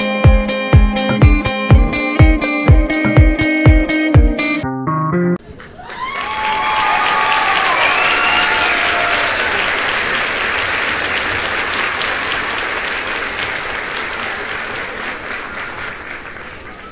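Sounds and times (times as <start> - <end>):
crowd applauding: 5.4 - 16.9.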